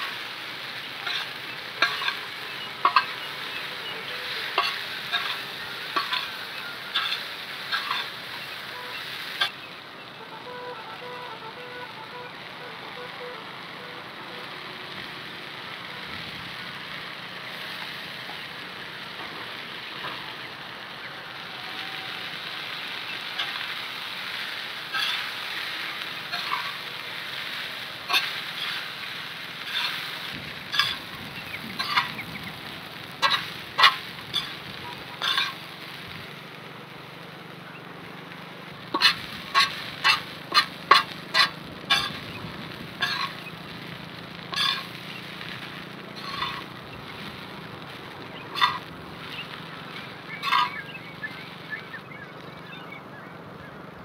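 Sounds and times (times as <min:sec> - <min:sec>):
food sizzling on a hot pan: 0:00.0 - 0:53.2
metal spatula scraping a pan: 0:00.8 - 0:09.7, 0:22.0 - 0:35.7, 0:38.9 - 0:43.6, 0:44.4 - 0:47.4, 0:48.4 - 0:51.0.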